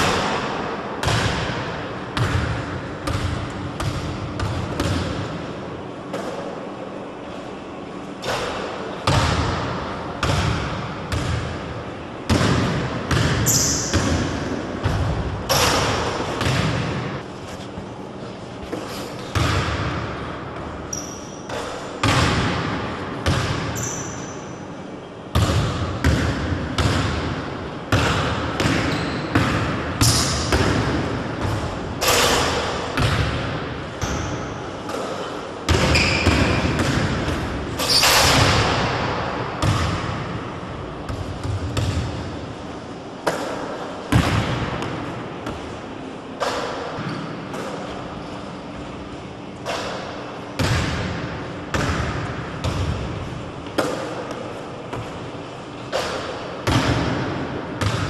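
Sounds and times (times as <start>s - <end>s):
basketball bouncing on wood floor: 2.2s - 5.2s, 12.3s - 17.1s, 19.3s - 20.0s, 20.9s - 24.1s, 25.4s - 27.3s, 35.7s - 37.4s, 39.6s - 40.2s, 57.8s - 58.0s
sneaker squeaks: 13.1s - 14.4s, 20.8s - 22.1s, 23.6s - 24.8s, 28.7s - 30.5s, 34.0s - 36.9s, 37.8s - 38.4s, 47.0s - 50.0s.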